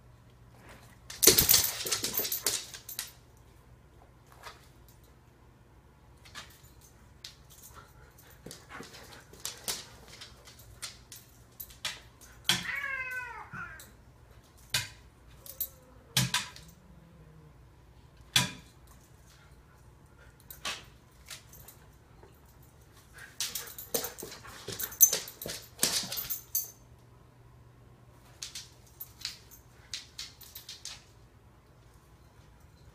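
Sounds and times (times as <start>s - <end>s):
cat meowing: 12.5s - 14.0s.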